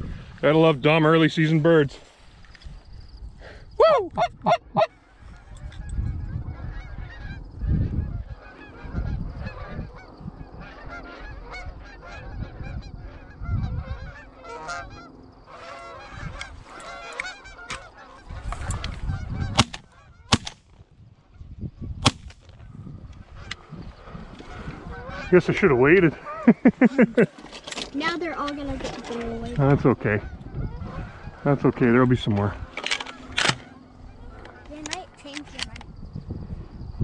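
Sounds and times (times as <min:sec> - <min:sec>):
low microphone rumble: 0:04.1 - 0:15.4
geese honking: 0:04.2 - 0:20.4, 0:23.3 - 0:27.3, 0:28.0 - 0:35.7.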